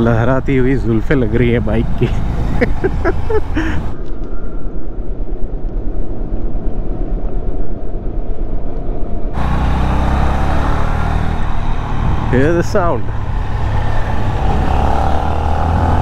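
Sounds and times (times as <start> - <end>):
road rumble: 0.0 - 5.9, 7.8 - 16.0
wind noise: 0.0 - 16.0
motorcycle engine running: 9.4 - 16.0.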